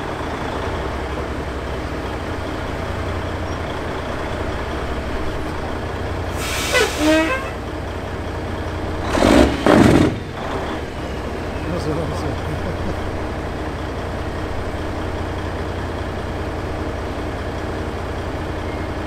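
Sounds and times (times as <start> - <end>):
diesel engine idling: 0.0 - 19.0
loud short noisy burst: 9.0 - 10.3.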